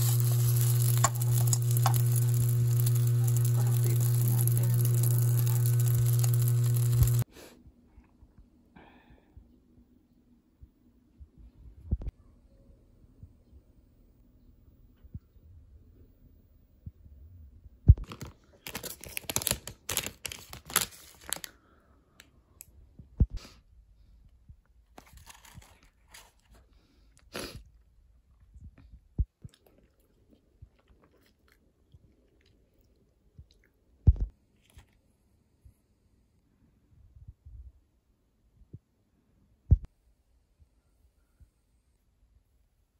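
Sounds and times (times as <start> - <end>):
packaging crackling and rustling: 0.0 - 7.2, 18.0 - 21.6, 25.0 - 26.6.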